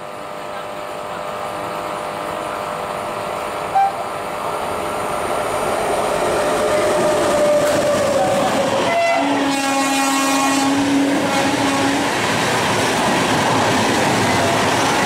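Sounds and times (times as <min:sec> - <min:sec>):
train rushing past: 0:03.2 - 0:15.0.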